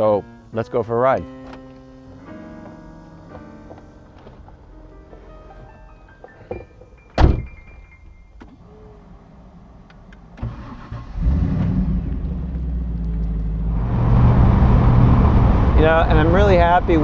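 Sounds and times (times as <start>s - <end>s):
car engine starting and idling: 6.3s - 17.0s
sharp clunk: 6.5s - 8.6s.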